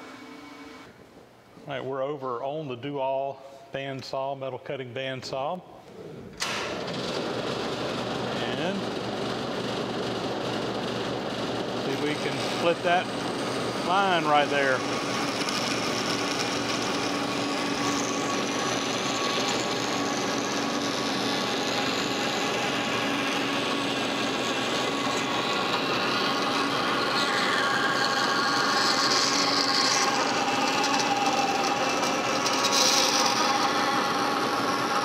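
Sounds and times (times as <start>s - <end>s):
bandsaw rasping through metal: 11.8s - 35.0s.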